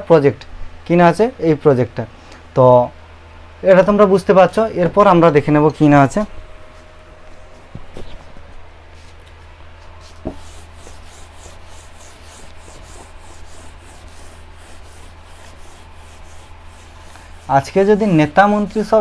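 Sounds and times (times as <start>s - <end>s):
duster rubbing whiteboard: 10.0s - 19.0s.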